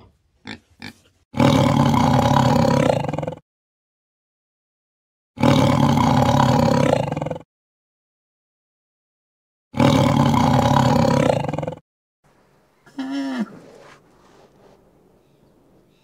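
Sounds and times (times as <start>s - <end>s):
tiger roaring: 1.4s - 3.4s, 9.8s - 11.8s.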